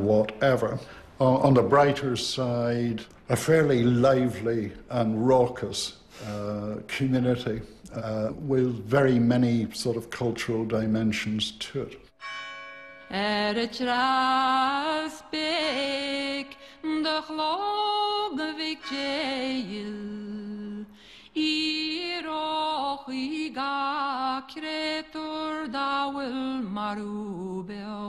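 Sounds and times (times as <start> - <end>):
singer breathing: 0.8 - 1.2, 6.1 - 6.4, 20.9 - 21.4
person singing unaccompanied: 13.1 - 28.0.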